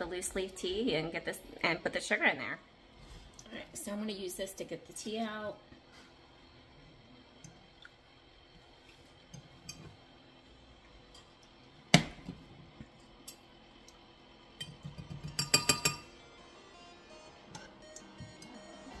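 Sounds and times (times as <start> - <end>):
metal strainer clinking on glass: 14.6 - 16.1.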